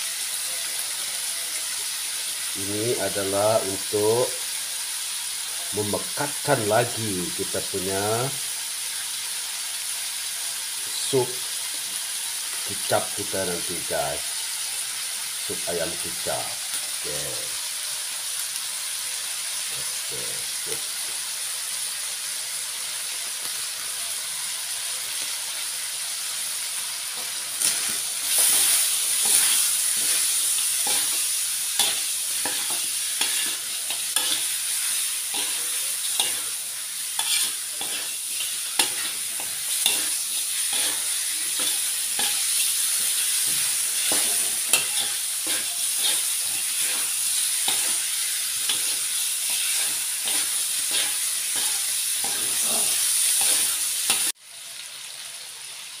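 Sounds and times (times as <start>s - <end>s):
chicken sizzling in a wok: 0.0s - 56.0s
metal spatula scraping wok: 27.6s - 54.3s.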